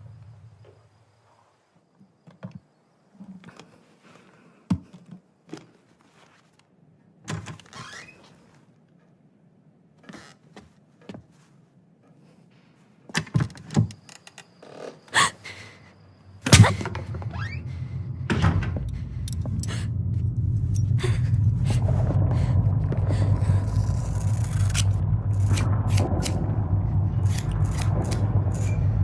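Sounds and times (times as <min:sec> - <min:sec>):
low rumbling drone: 0:16.4 - 0:29.0
heavy thunk: 0:16.5 - 0:17.4, 0:18.2 - 0:19.8.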